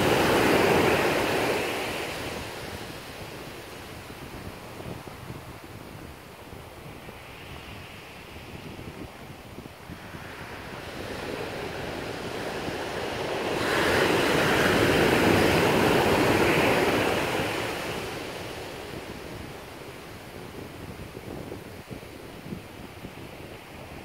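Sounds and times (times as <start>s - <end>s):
ocean wave breaking on beach: 0.0s - 4.4s, 9.4s - 21.2s.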